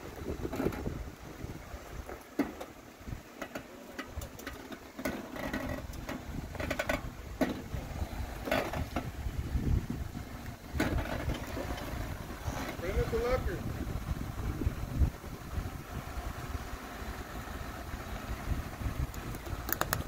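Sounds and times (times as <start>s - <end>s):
vehicle engine low rumble: 0.0s - 20.0s
knocks and clunks: 2.0s - 7.7s, 8.4s - 9.2s, 10.8s - 12.8s.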